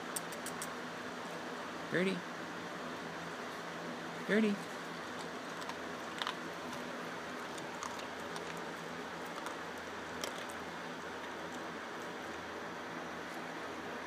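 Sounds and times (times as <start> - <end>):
dog crunching kibble: 4.4 - 12.6.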